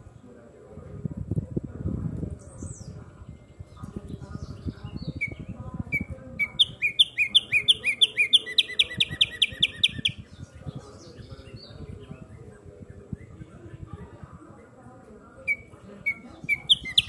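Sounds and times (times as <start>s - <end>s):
songbird whistling trill: 4.4s - 13.5s, 15.4s - 17.0s.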